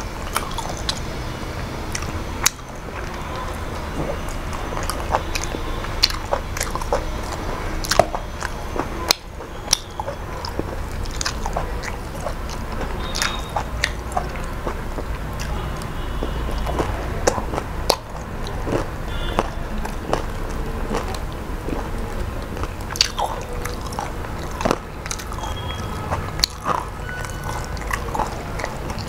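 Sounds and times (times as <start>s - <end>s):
person chewing food: 0.0s - 29.0s.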